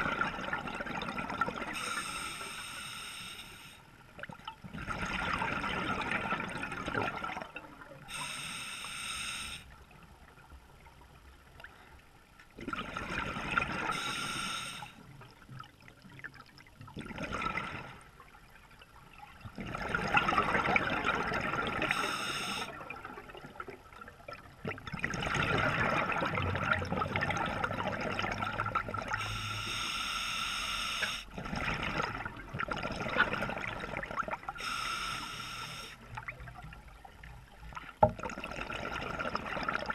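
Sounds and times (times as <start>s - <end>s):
exhaled bubbles underwater: 0.0s - 2.2s, 4.0s - 8.4s, 12.5s - 29.8s, 31.0s - 39.9s
regulator inhalation hiss: 1.8s - 3.8s, 8.1s - 9.7s, 14.0s - 15.0s, 21.9s - 22.7s, 29.2s - 31.3s, 34.6s - 36.0s.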